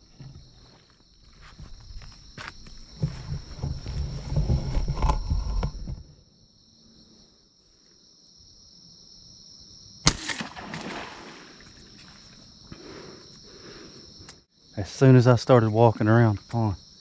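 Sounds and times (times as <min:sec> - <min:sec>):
high insect drone: 0:00.0 - 0:17.0
crossbow firing snap: 0:10.0 - 0:11.6.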